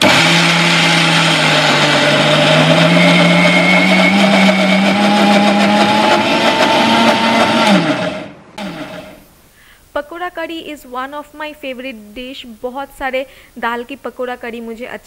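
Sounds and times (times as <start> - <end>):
mixer grinder motor: 0.0 - 9.2.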